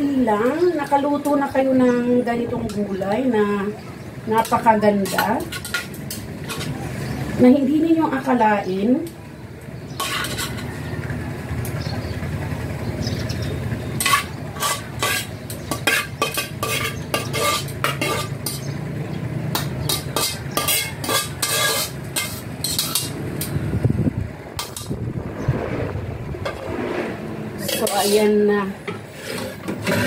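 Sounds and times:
utensil scraping a wok: 4.4 - 7.1, 9.9 - 10.8, 13.9 - 18.6, 19.6 - 23.7, 26.4 - 30.0
steady low hum: 23.1 - 28.9.

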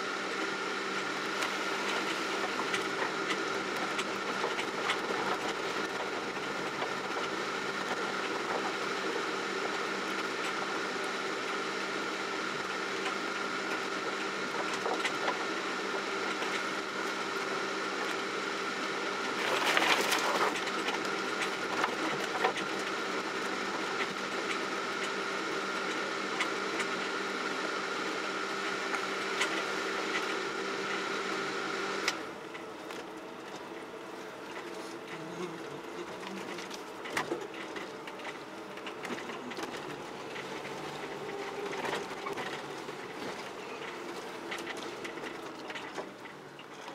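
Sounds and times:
vehicle engine drone with whine: 0.0 - 46.9
branches scraping along vehicle: 19.3 - 22.2, 32.4 - 46.9.

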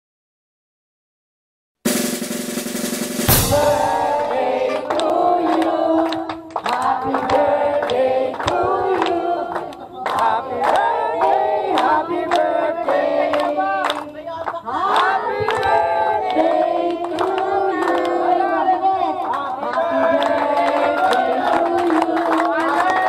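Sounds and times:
music track with drums: 1.9 - 5.6
group singing birthday song: 1.9 - 23.0
people clapping along: 3.3 - 23.0.

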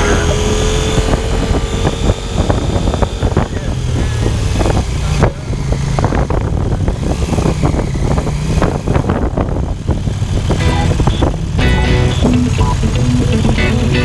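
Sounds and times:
motorcycle engine running: 0.0 - 14.0
wind noise on microphone: 0.0 - 14.0.

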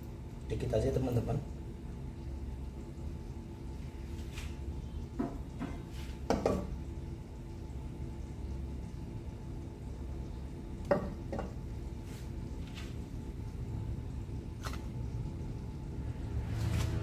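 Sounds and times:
gas burner rumble: 0.0 - 17.0
pan knocking on stove: 5.2 - 6.7, 10.9 - 11.6.

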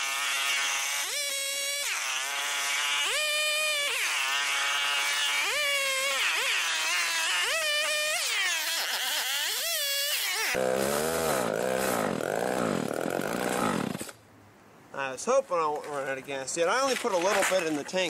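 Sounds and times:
chainsaw cutting through log: 0.0 - 14.2
chainsaw revving: 0.0 - 14.2.

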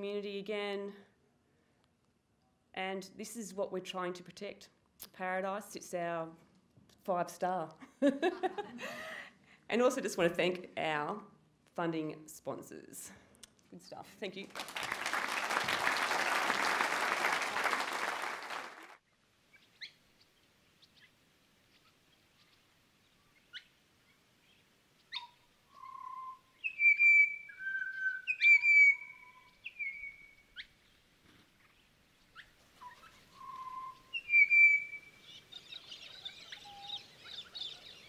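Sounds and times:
audience applauding: 14.4 - 19.0
birdsong chips and whistles: 25.1 - 30.7, 32.4 - 38.0.

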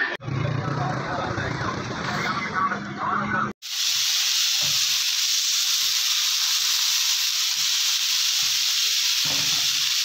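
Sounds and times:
patties sizzling in hot oil: 3.6 - 10.0.

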